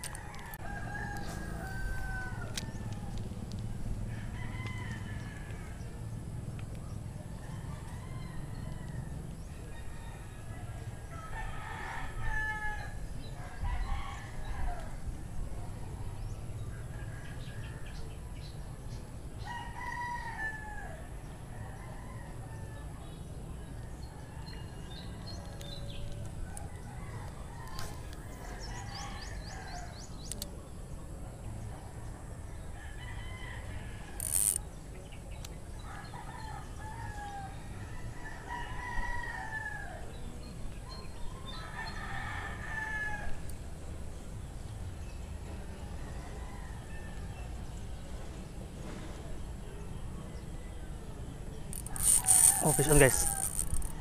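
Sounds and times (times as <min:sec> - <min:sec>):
roosters crowing: 0:00.0 - 0:03.4, 0:04.0 - 0:06.0, 0:07.4 - 0:14.9, 0:19.4 - 0:22.9, 0:25.3 - 0:30.1, 0:32.8 - 0:34.6, 0:35.8 - 0:40.2, 0:41.5 - 0:43.5, 0:51.8 - 0:54.0.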